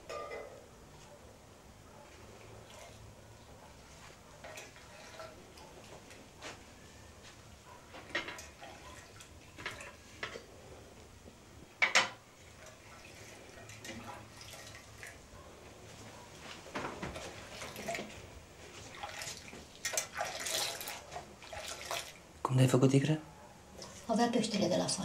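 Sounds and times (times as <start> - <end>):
metal pot and lid clinking: 0.0 - 0.6.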